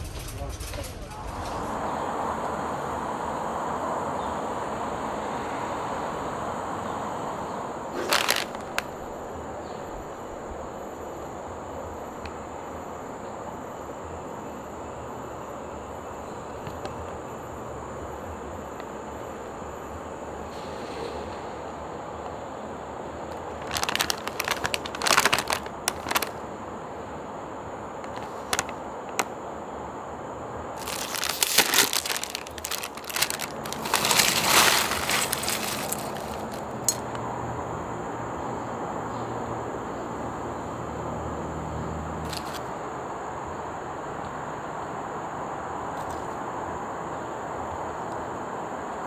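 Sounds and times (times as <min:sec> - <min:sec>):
foil crisp bag crinkling: 0:07.9 - 0:09.0, 0:23.3 - 0:26.4, 0:28.1 - 0:29.3, 0:30.8 - 0:37.0
chips rattling onto a plate: 0:08.0 - 0:08.9, 0:23.6 - 0:26.3, 0:30.8 - 0:37.0
sharp clicks and crackles: 0:08.0 - 0:08.9, 0:23.3 - 0:26.4, 0:28.0 - 0:29.3, 0:30.8 - 0:37.2.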